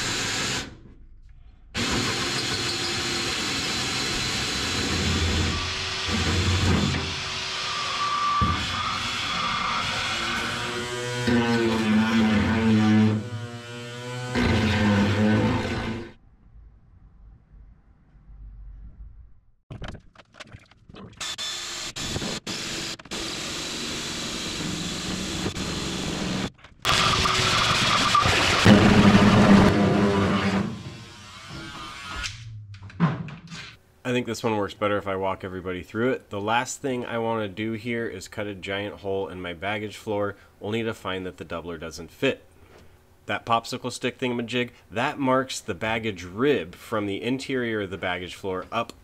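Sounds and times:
drill cutting aluminum sheet: 0:00.0 - 0:00.7, 0:01.8 - 0:16.1, 0:21.2 - 0:32.4.

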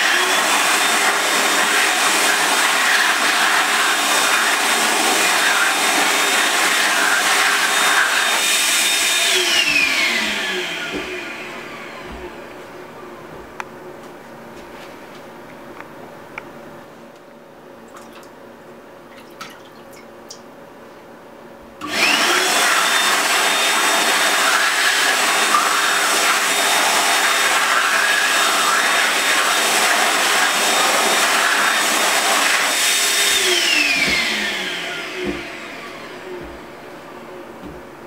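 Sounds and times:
hand dryer blowing: 0:00.0 - 0:12.8, 0:21.8 - 0:38.0.

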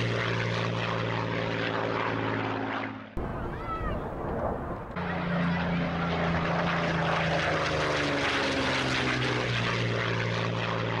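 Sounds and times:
propeller aircraft engine running: 0:00.0 - 0:11.0.

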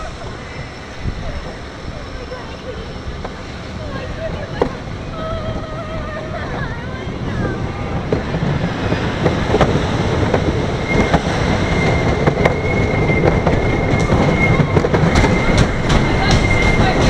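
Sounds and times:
high-pitched squeal: 0:00.0 - 0:04.1, 0:07.7 - 0:17.0
roller coaster rumbling on track: 0:00.0 - 0:17.0
wheels clacking: 0:00.0 - 0:17.0.

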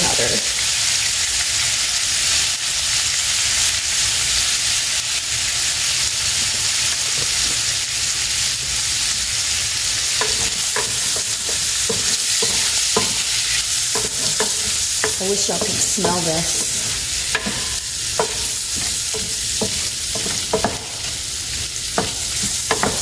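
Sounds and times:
pork sizzling in hot fat: 0:00.0 - 0:23.0
utensil scraping pan: 0:10.2 - 0:23.0.

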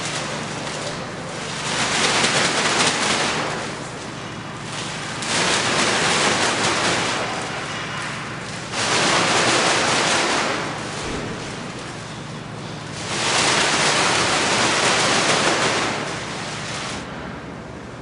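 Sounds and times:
plastic bag rustling against wall: 0:00.0 - 0:17.0.

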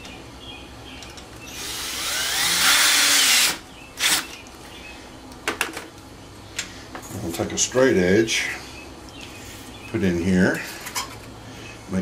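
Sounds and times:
cordless drill whining: 0:01.6 - 0:04.2.

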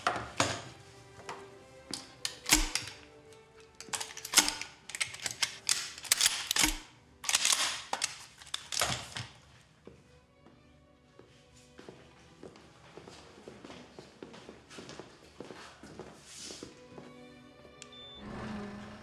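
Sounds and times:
background music: 0:00.0 - 0:19.0
shotgun metallic clicks and clacks: 0:01.9 - 0:09.4.

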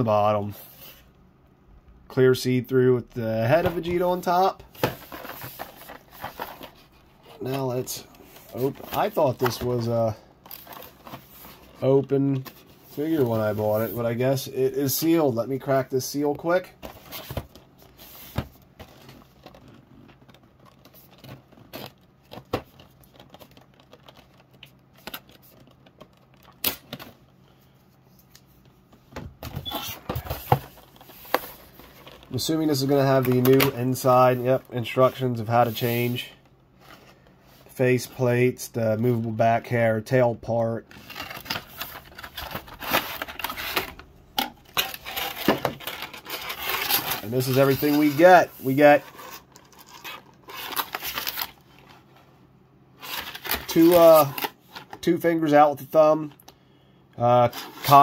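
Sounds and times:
cardboard rustling: 0:03.4 - 0:14.4, 0:28.5 - 0:36.1, 0:40.9 - 0:52.3, 0:53.0 - 0:55.0
plastic tray and cardboard crackling: 0:40.9 - 0:52.0.

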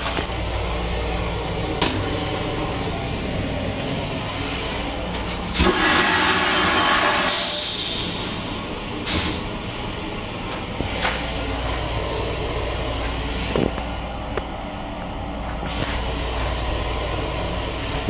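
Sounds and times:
train car rumble: 0:00.0 - 0:18.0
toilet flushing: 0:00.3 - 0:09.5.

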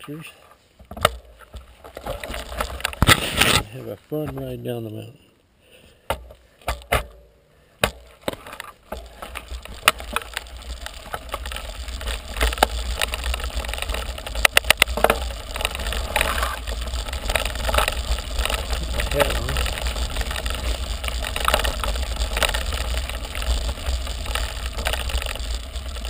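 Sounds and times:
bike rattling clicks: 0:00.9 - 0:03.6, 0:07.8 - 0:26.0
bike tyres crunching on gravel: 0:01.0 - 0:04.8, 0:07.8 - 0:26.0
low rumble: 0:10.4 - 0:26.0.

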